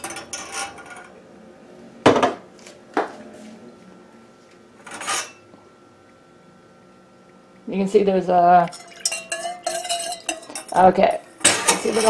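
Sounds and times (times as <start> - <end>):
kitchenware clattering: 0.0 - 1.1, 4.8 - 5.4, 8.7 - 12.0.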